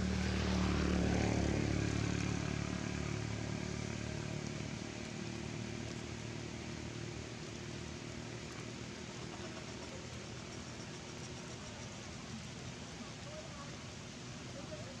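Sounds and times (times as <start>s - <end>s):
engine droning past: 0.0s - 15.0s.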